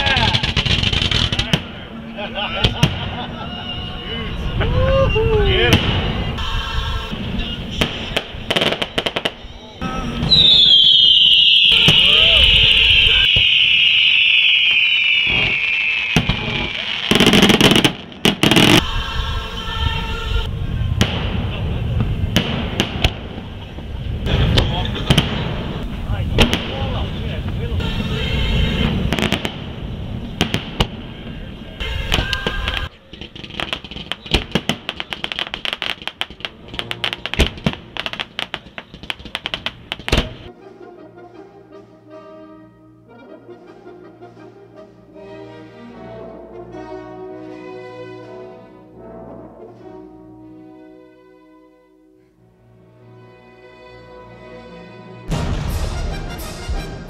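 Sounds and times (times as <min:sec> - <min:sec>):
firework bangs: 0:00.0 - 0:01.8, 0:07.7 - 0:09.4, 0:10.2 - 0:18.9, 0:20.8 - 0:27.6, 0:28.4 - 0:40.5
firework whistle hiss: 0:08.4 - 0:17.9
firework shells bursting: 0:13.3 - 0:18.8, 0:32.2 - 0:40.4.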